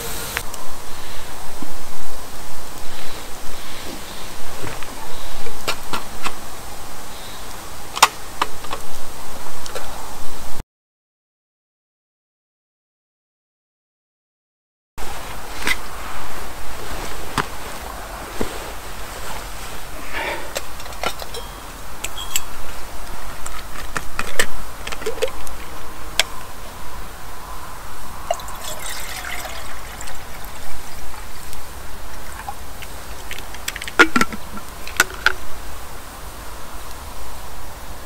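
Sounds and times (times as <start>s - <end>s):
cup clinking and knocking: 20.9s - 22.6s, 28.3s - 31.4s, 34.0s - 35.3s
coffee pouring: 28.2s - 34.8s.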